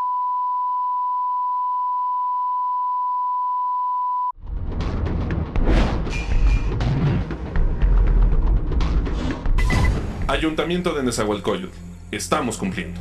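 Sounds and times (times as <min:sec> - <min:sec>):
loud intro music with heavy hits: 0:04.4 - 0:10.8.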